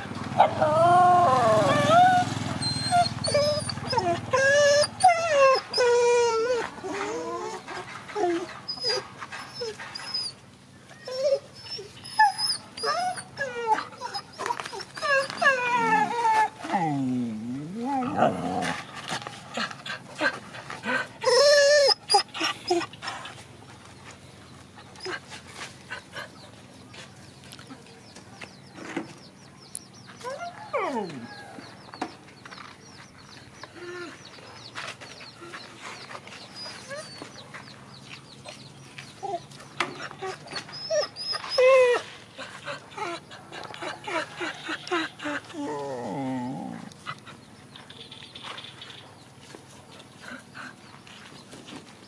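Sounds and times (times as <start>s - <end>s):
dog whining: 0.4s - 10.4s, 11.0s - 18.8s, 19.6s - 22.9s, 30.2s - 31.4s, 36.5s - 37.3s, 39.2s - 42.2s, 42.9s - 46.9s.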